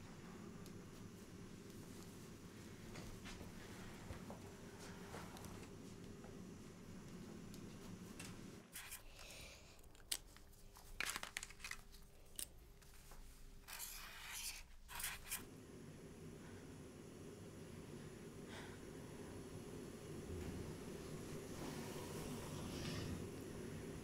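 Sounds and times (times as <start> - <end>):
crayon scribbling on paper: 13.7 - 15.4.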